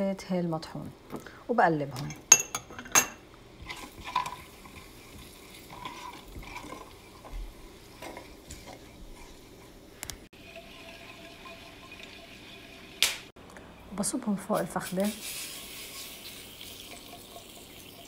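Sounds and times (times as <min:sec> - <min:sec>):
faint sizzling oil: 0:03.6 - 0:18.0
spatula scraping spices in pan: 0:07.8 - 0:09.9, 0:14.6 - 0:16.4.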